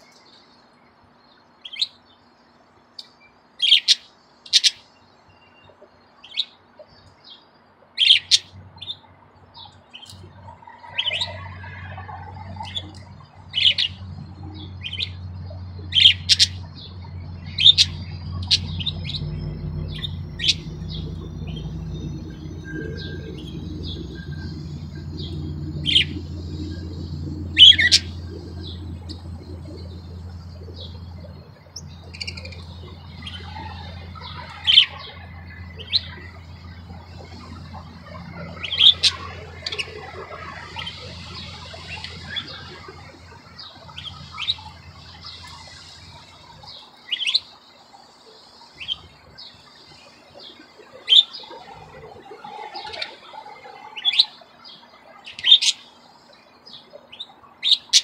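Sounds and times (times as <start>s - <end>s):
steady low hum: 10.2s - 47.0s
budgerigars chirping: 14.6s - 47.5s.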